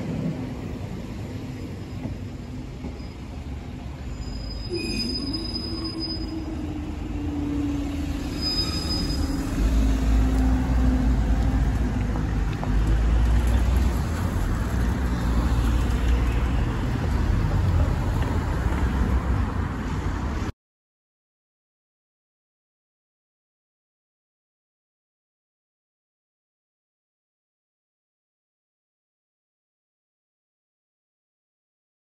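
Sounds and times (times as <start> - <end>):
cars driving across: 0.0 - 20.5
crossing barriers rising with hum: 0.0 - 20.5.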